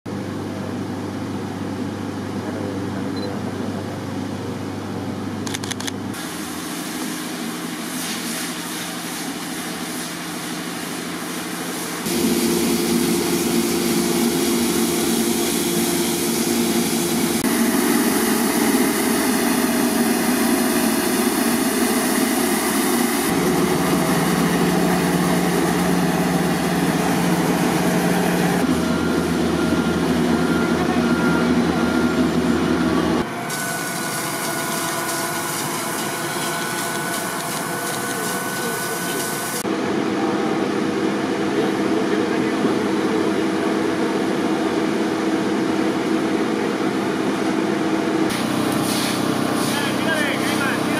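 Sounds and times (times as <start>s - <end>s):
high-pressure water jets hissing: 6.2s - 28.6s, 33.5s - 39.6s, 48.3s - 50.9s
diesel truck engines running: 12.1s - 39.7s.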